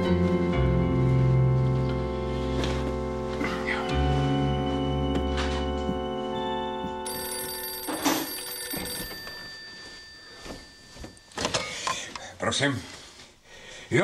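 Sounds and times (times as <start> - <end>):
background music: 0.0 - 8.4
telephone ringing: 4.3 - 12.1.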